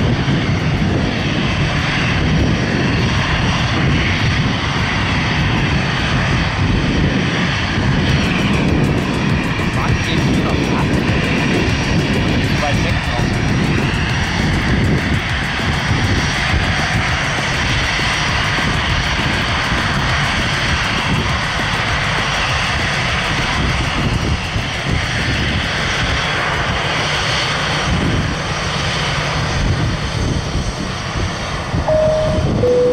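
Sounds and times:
aircraft engines rumbling: 0:00.0 - 0:32.9
faint high steady tones: 0:31.9 - 0:32.9.

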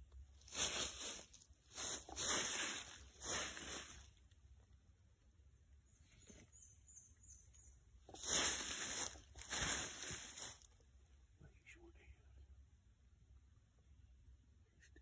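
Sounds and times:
rustling in bursts: 0:00.4 - 0:04.0, 0:08.1 - 0:10.7.

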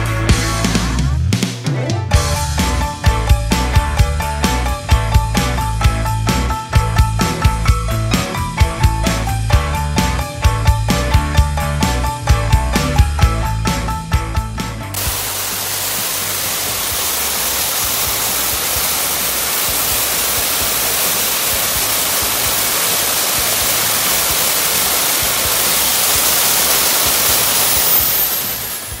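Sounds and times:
smoke pyrotechnic hissing: 0:15.0 - 0:29.0.

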